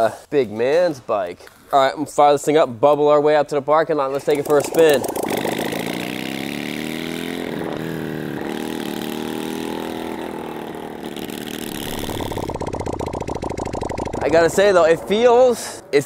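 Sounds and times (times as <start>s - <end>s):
motorcycle engine running: 4.2s - 16.0s.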